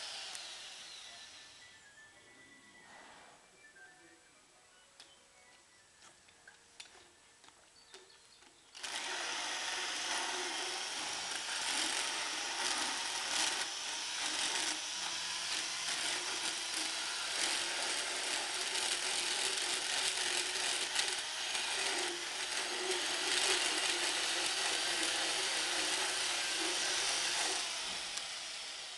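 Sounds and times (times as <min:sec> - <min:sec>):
motorized dental float grinding: 0:00.0 - 0:01.8, 0:08.8 - 0:28.9.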